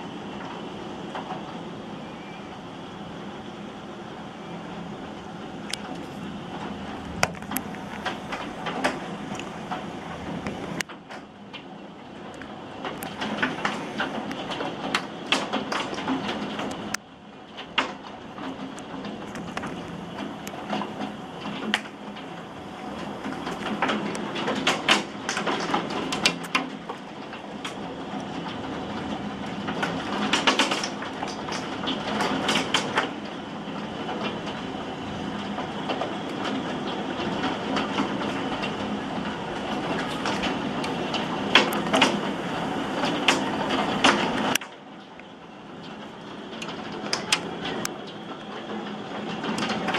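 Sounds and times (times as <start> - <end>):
heavy rain: 0.0 - 49.9
hail striking hard surfaces: 5.8 - 11.7, 12.3 - 44.9, 45.8 - 49.9.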